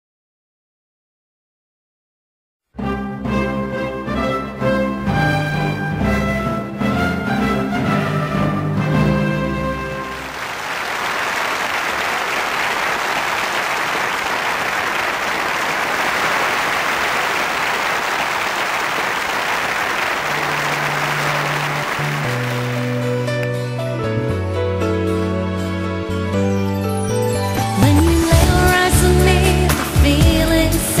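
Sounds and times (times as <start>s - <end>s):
audience applauding: 9.9s - 23.6s.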